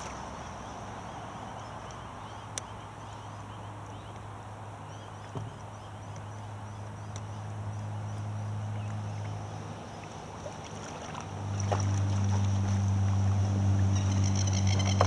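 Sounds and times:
light knocks against hull: 5.2s - 5.6s
steady low hum: 5.9s - 15.0s
water sloshing: 8.9s - 15.0s.

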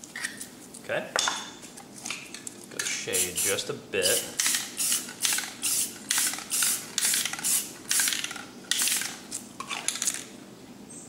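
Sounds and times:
spray paint can hissing bursts: 3.1s - 9.2s.

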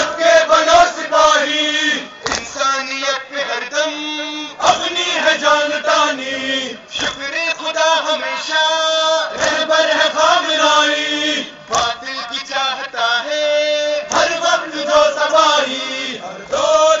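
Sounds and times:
men chanting: 0.0s - 17.0s
hands slapping chests: 2.2s - 2.5s, 7.0s - 7.2s, 9.4s - 9.6s, 11.7s - 12.0s, 14.1s - 14.4s.

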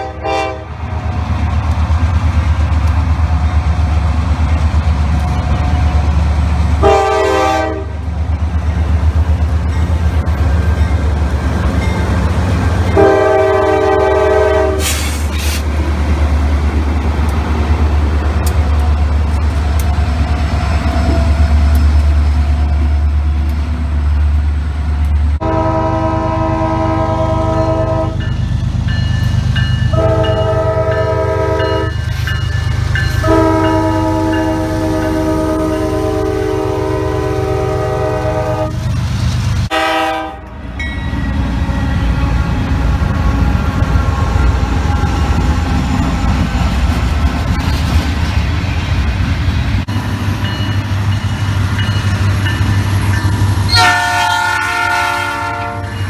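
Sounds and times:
locomotive horn: 0.0s - 0.8s, 6.8s - 8.1s, 12.9s - 15.1s, 25.4s - 28.3s, 29.9s - 32.0s, 33.1s - 38.9s, 39.7s - 40.6s, 53.6s - 56.0s
approaching train rumble: 0.0s - 56.0s
locomotive engine rumbling: 0.0s - 56.0s
multi-chime air horn blasts: 33.1s - 38.7s.

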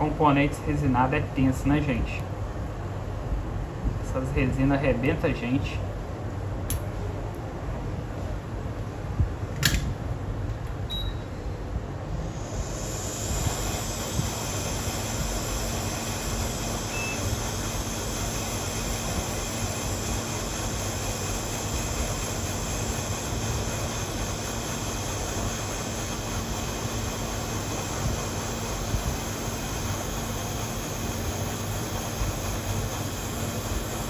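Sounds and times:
hot air blower blowing: 11.8s - 34.0s.

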